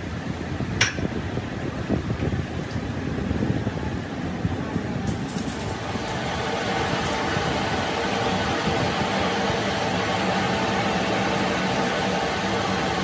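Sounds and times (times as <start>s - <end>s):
workshop machinery running: 4.6s - 13.0s.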